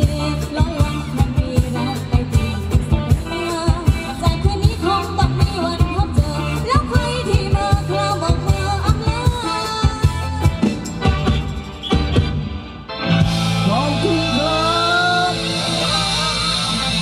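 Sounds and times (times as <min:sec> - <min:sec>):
steady drum beat: 0:00.0 - 0:14.4
bass: 0:00.0 - 0:17.0
dance band music: 0:00.0 - 0:17.0
person singing melody: 0:13.6 - 0:17.0.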